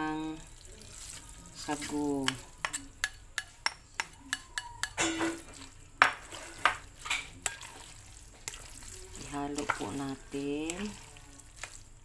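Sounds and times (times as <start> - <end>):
metal spoon clinking glass bowl: 1.0 - 8.7.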